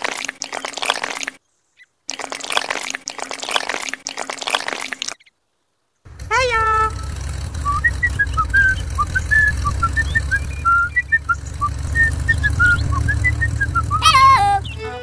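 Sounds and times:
birds chirping: 0:05.1 - 0:15.0
vehicle engine rumbling: 0:06.1 - 0:15.0.

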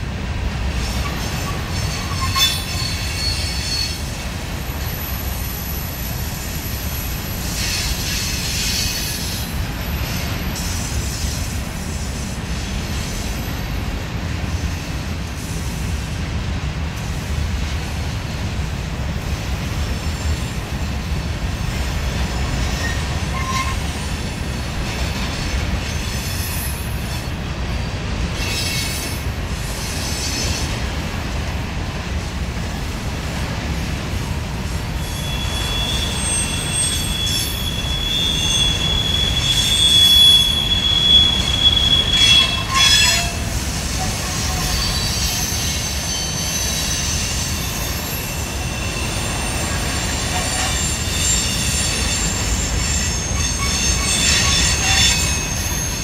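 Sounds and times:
train wheels rumbling on rail: 0:00.0 - 0:56.0
high-pitched wheel squeal: 0:00.8 - 0:04.2, 0:22.5 - 0:24.1, 0:35.0 - 0:56.0.

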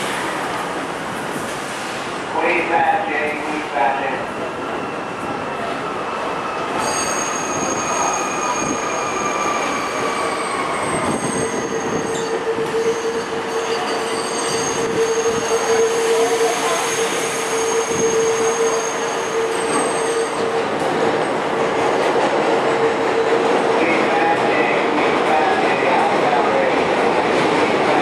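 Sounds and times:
train wheels squealing on track: 0:04.5 - 0:20.8.

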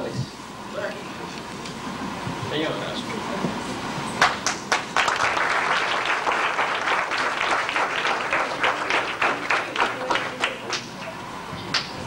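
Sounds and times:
group applauding: 0:04.2 - 0:12.0.

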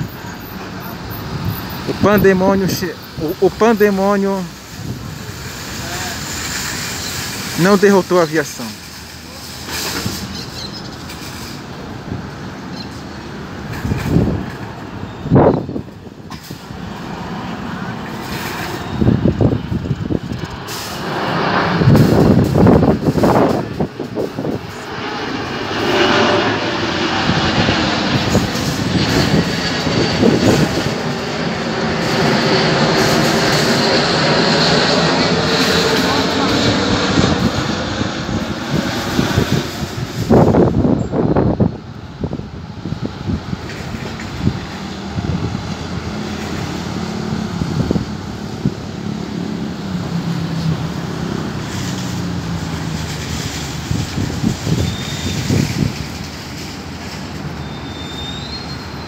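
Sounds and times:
jet engines rumbling overhead: 0:00.0 - 0:59.0
high fan whine: 0:11.0 - 0:58.0
wind on microphone: 0:13.6 - 0:16.9, 0:18.7 - 0:31.2, 0:35.1 - 0:56.6.

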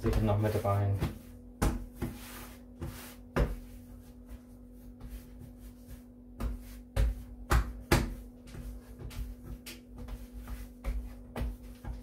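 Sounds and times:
dough thumping on worktop: 0:00.0 - 0:03.8, 0:06.3 - 0:12.0
steady low hum: 0:00.0 - 0:12.0.

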